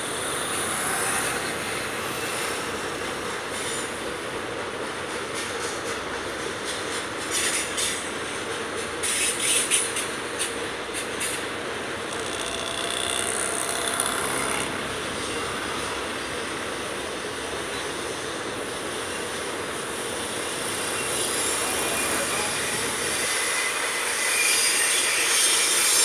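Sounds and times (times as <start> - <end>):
train wagons rolling on rails: 0.0 - 26.0
high wheel squeal: 12.0 - 16.8, 20.3 - 26.0
sharp wheel clicks: 12.1 - 14.8.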